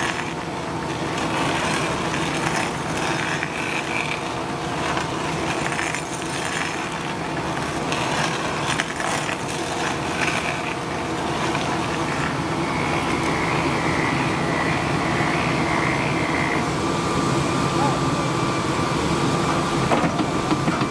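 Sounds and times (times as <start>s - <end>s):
stump drill boring into wood: 0.0s - 16.6s
machine engine running: 0.0s - 20.9s.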